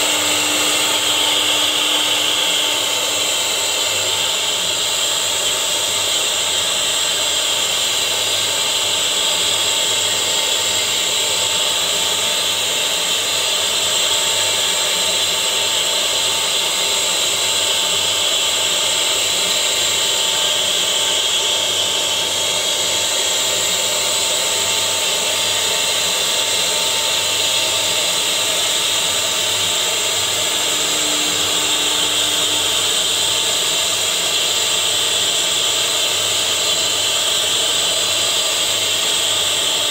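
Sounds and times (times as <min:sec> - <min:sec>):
wood router cutting wood: 0:00.0 - 0:39.9.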